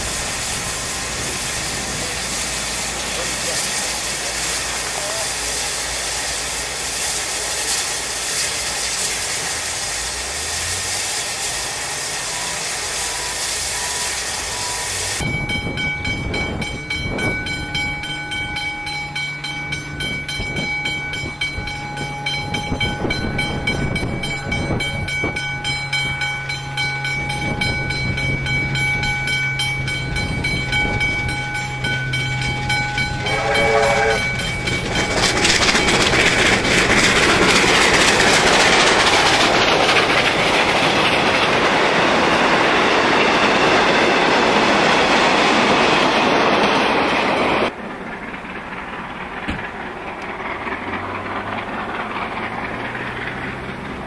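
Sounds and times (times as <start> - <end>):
steam hissing from locomotive: 0.0 - 54.0
steam locomotive exhaust and running: 0.0 - 54.0
steam whistle: 8.3 - 15.3, 30.8 - 36.6.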